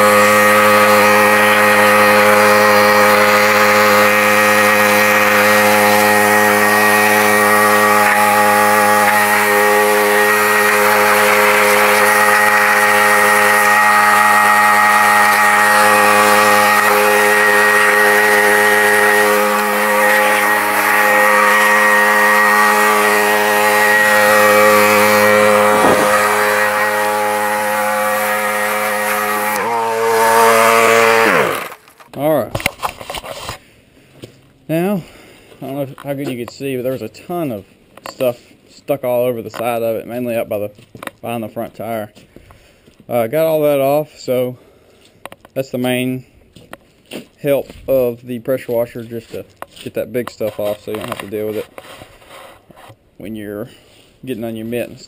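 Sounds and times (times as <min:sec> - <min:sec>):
water jet hissing: 0:00.0 - 0:31.8
pressure washer engine droning: 0:00.0 - 0:31.9.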